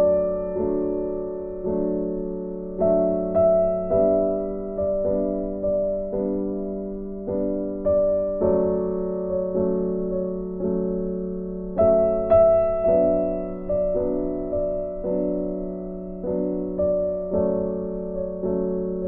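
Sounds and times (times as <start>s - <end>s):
slow gentle piano chords: 0.0s - 19.0s.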